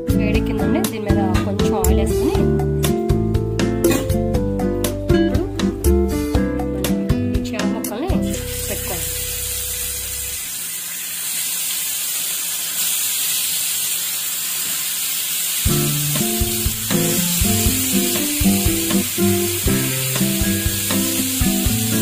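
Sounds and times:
background music with plucked notes: 0.0 - 10.4, 15.7 - 22.0
fish sizzling on griddle: 8.3 - 22.0.

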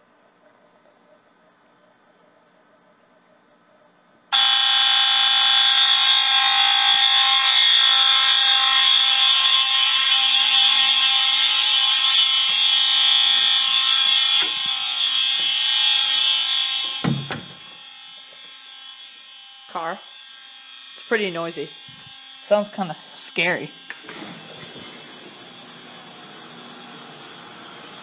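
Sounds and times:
fire alarm horns buzzing: 4.3 - 28.0
thump: 17.0 - 17.5.

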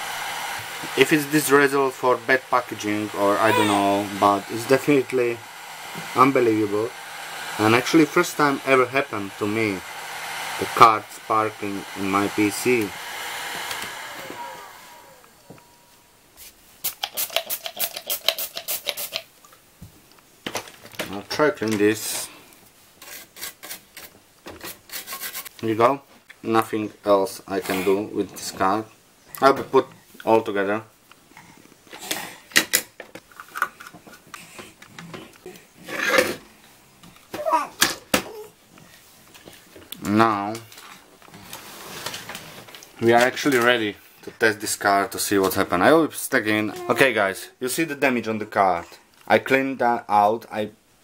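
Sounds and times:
whirring motor winding down: 9.7 - 15.8
parts rubbing and scraping: 35.8 - 36.5.

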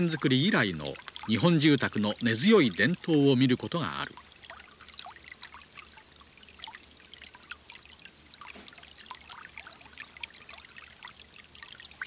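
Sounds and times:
water trickling and splashing: 0.0 - 12.0.

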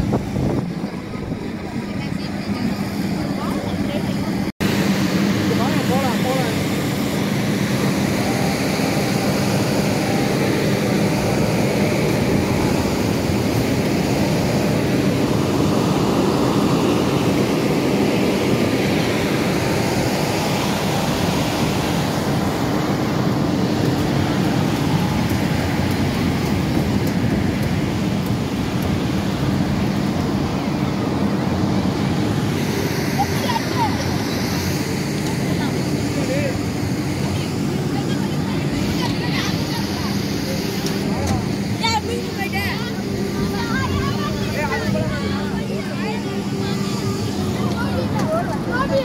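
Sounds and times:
crowd noise: 0.0 - 21.3, 29.5 - 49.0
fairground rides running: 0.0 - 49.0.

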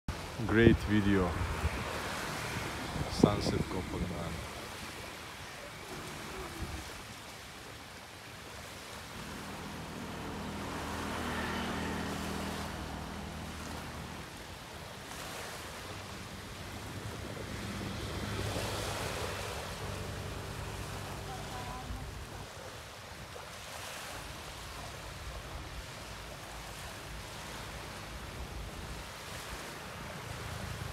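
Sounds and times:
waves washing onto shore: 0.1 - 30.9
low engine hum: 9.0 - 22.7.

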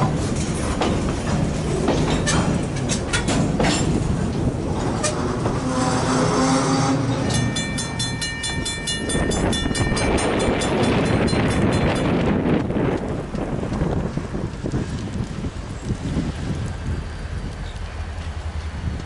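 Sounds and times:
low rumble of freight cars: 0.0 - 19.0
train wheels clicking on rail joints: 0.0 - 19.0
railroad bell ringing rapidly: 7.2 - 12.2.

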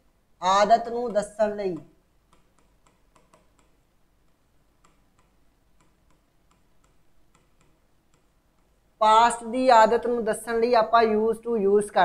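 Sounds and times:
marker writing on whiteboard: 0.4 - 9.5.

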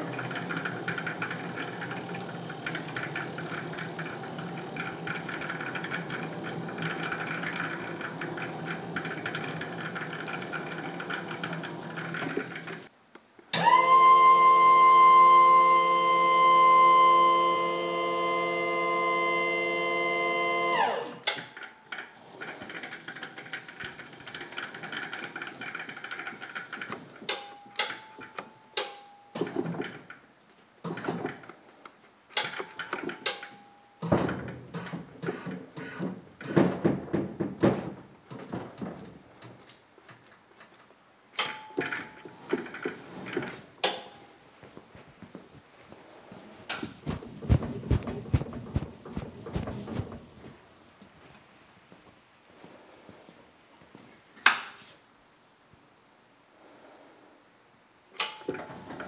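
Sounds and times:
forklift motor whine: 0.0 - 12.7, 13.5 - 21.2
forklift rattles and knocks: 0.0 - 12.9, 21.5 - 28.4, 36.0 - 39.6, 46.7 - 50.7.

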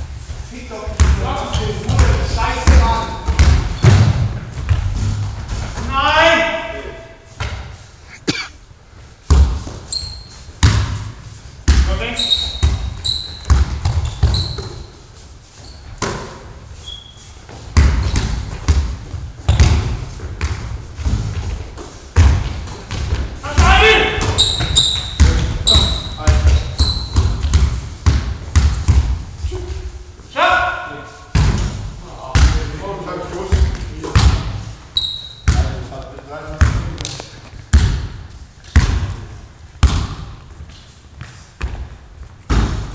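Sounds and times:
basketball bouncing on gym floor: 0.9 - 5.9, 9.2 - 14.9, 15.8 - 29.4, 31.3 - 32.8, 33.4 - 40.6, 41.2 - 42.9
brief high squeak: 9.9 - 10.5, 24.4 - 26.2, 35.0 - 35.4.

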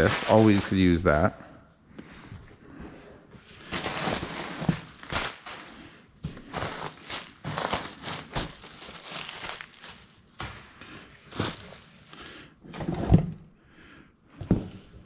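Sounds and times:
bubble wrap crinkling: 0.0 - 1.0, 3.6 - 12.2.

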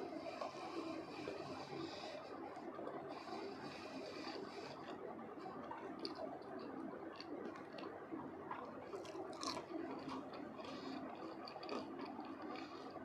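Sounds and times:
chewing crispy fried potatoes: 0.0 - 13.0
wet mouth sounds: 2.6 - 13.0.

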